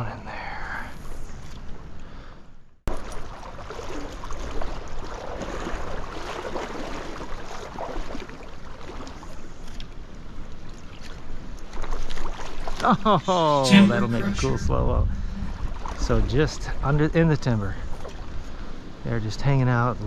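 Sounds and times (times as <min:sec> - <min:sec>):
small water splashes: 0:02.9 - 0:13.6, 0:15.5 - 0:17.0, 0:17.8 - 0:18.8.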